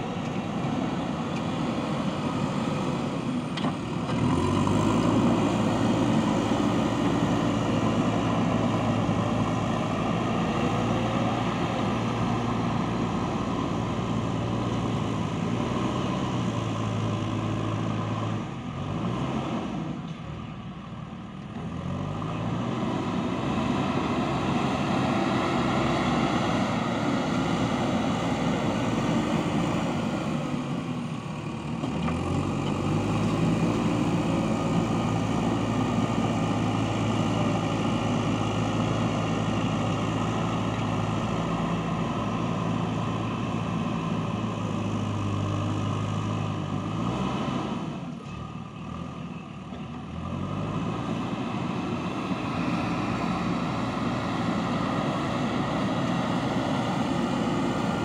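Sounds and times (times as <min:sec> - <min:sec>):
diesel engine working: 0:00.0 - 0:58.0.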